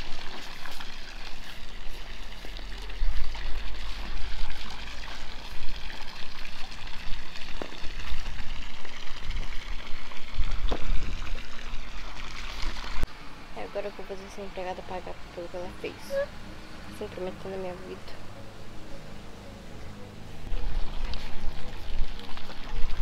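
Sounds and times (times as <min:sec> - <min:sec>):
water splashing into pool: 0:00.0 - 0:13.1, 0:20.4 - 0:23.0.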